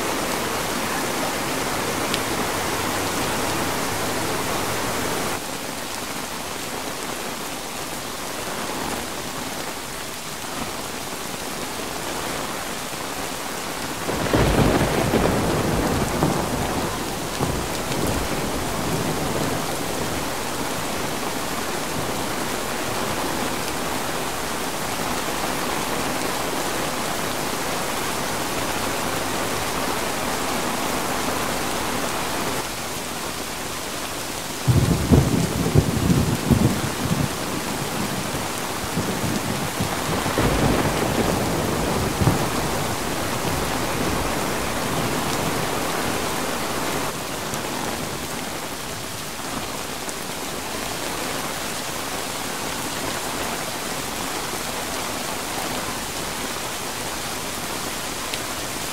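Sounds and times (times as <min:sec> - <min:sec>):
heavy rain: 0:00.0 - 0:58.9
thunder rumbling: 0:14.0 - 0:20.6, 0:34.6 - 0:45.5.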